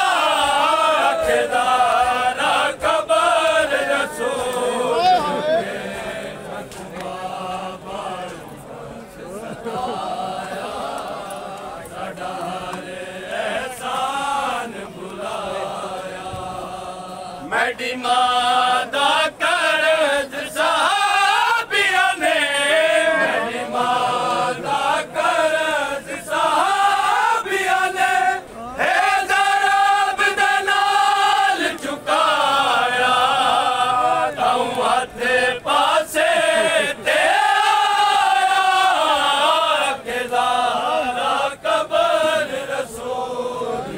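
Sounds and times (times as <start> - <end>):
men chanting a lament: 0.0 - 43.9.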